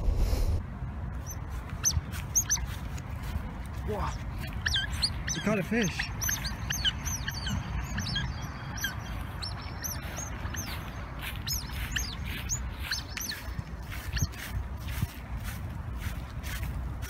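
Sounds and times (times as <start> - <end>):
otters chirping: 1.2 - 15.1.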